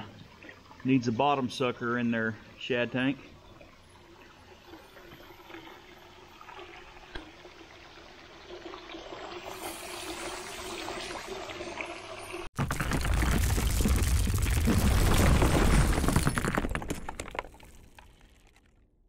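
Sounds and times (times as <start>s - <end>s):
water splashing and bubbling: 3.2s - 18.8s
loud crash of shattering: 12.6s - 17.9s.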